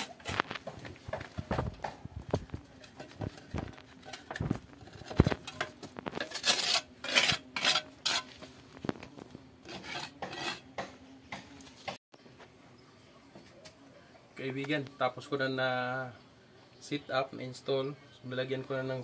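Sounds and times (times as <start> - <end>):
trowel scraping and tapping cement: 0.0 - 12.0.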